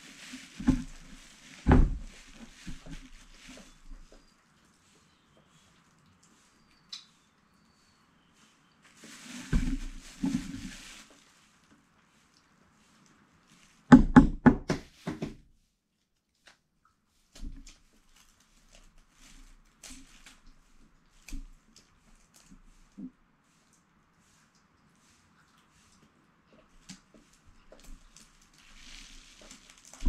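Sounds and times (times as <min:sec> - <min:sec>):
short rustling: 0:00.0 - 0:04.4, 0:08.4 - 0:13.9, 0:26.7 - 0:30.0.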